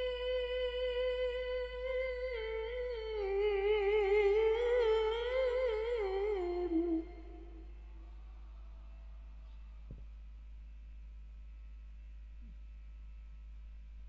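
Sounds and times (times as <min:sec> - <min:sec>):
woman reciting melodically: 0:00.0 - 0:07.8.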